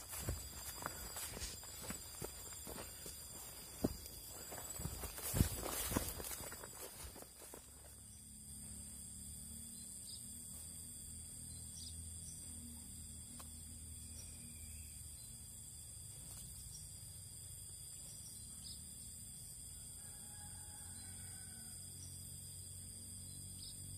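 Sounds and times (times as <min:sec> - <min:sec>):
high-pitched insect chorus: 0:00.0 - 0:23.9.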